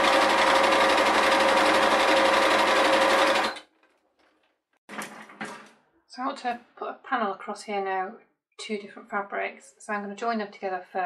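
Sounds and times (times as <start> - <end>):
sewing machine stitching: 0.0 - 3.7.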